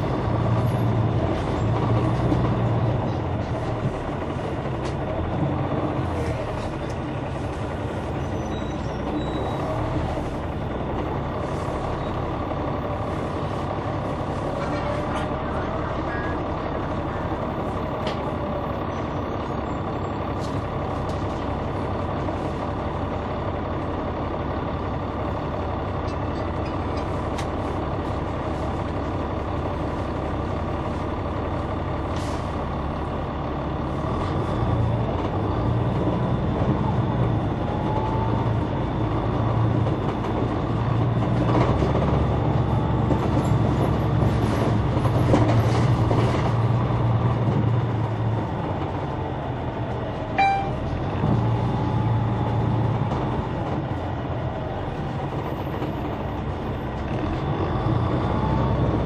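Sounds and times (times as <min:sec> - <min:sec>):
bus engine drone: 0:00.0 - 0:59.0.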